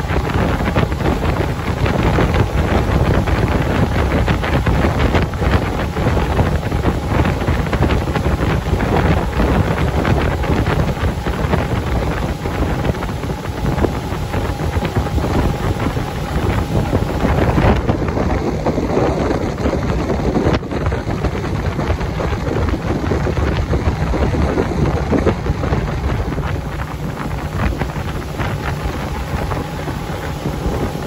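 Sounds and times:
motorboat motor: 0.0 - 31.0
water rushing: 0.0 - 31.0
wind buffeting microphone: 0.0 - 31.0.

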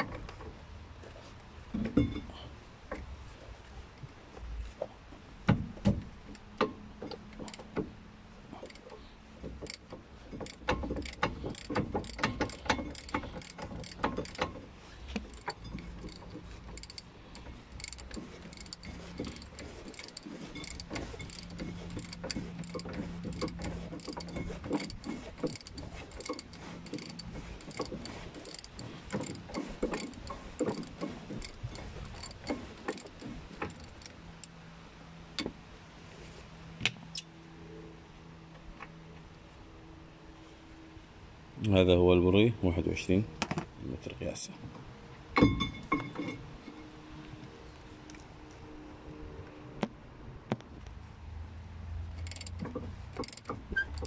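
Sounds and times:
ratchet wrench clicking: 6.3 - 7.7, 8.6 - 8.9, 9.5 - 14.6, 15.2 - 34.5, 52.1 - 54.0
metal knocks: 45.4 - 46.4.

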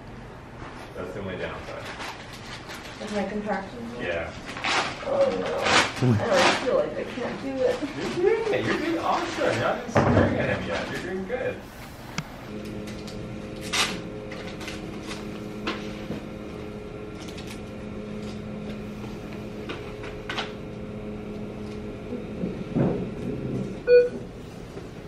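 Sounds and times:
low machine hum: 5.0 - 25.0.

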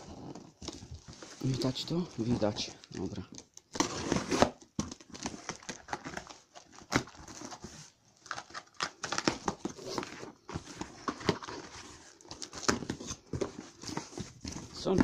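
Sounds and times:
tape and cardboard tearing: 3.6 - 7.6.

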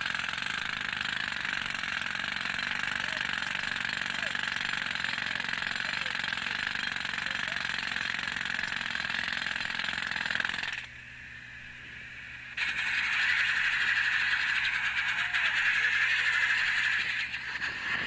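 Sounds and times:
jackhammer hammering: 0.0 - 10.9, 12.5 - 18.0.

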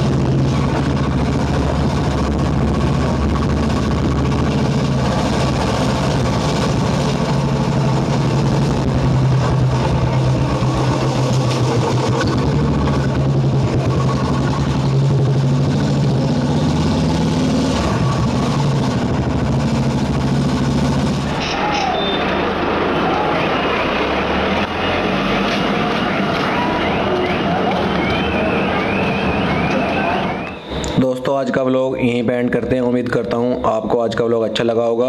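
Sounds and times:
motorcycle engine running: 0.0 - 21.4.

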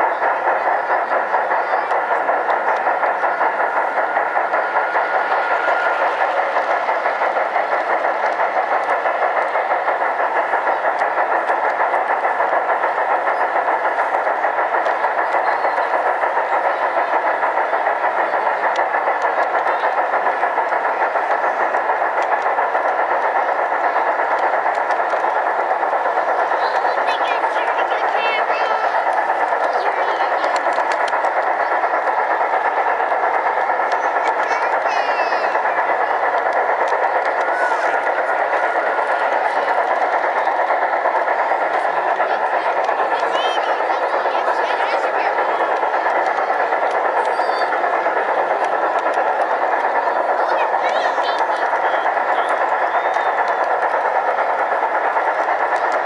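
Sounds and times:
model train motor humming: 0.0 - 56.0
wheels rolling on rails: 0.0 - 56.0.

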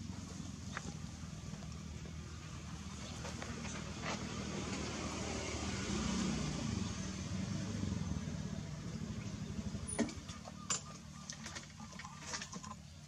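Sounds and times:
vehicle engine idling: 0.0 - 5.5.

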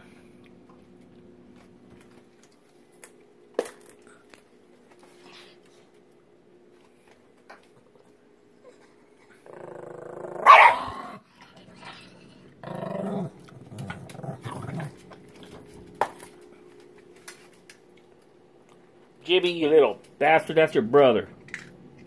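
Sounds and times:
small dog growling and snarling: 8.7 - 15.2.

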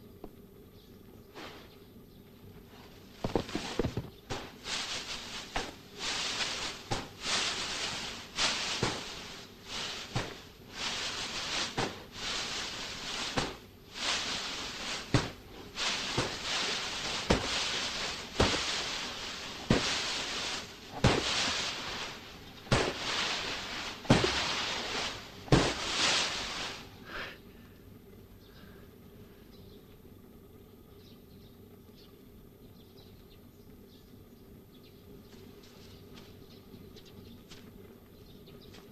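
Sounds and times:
grain showering down: 3.2 - 27.3
shovel scraping wooden vat: 4.8 - 26.8.

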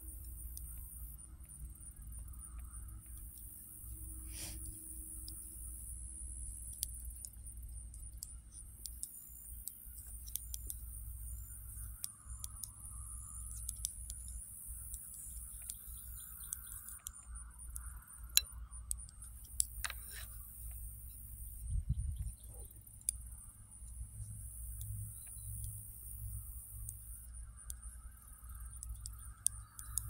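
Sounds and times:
steady high hiss: 0.0 - 21.8
knitting needles clicking: 13.5 - 20.8.

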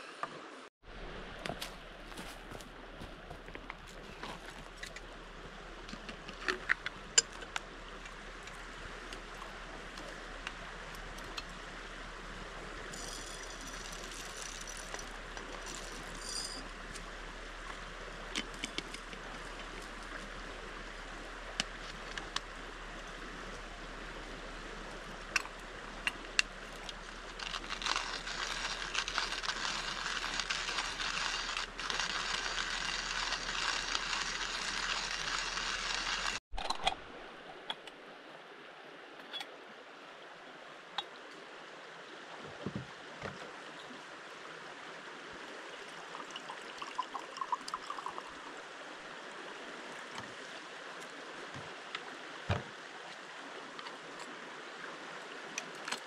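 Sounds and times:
shallow stream rushing: 0.0 - 36.4, 37.0 - 56.0
hand coffee grinder grinding: 12.9 - 16.6, 26.1 - 36.9.

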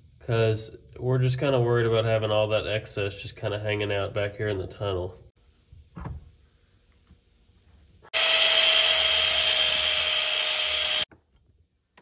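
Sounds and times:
angle grinder on metal: 8.1 - 11.1.

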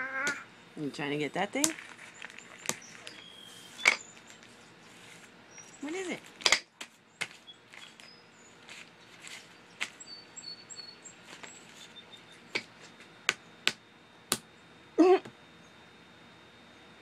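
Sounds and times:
baby squealing: 0.0 - 0.5
hand slapping tabletop: 6.4 - 7.4, 13.3 - 14.5
faint bird chirps: 9.5 - 12.5.

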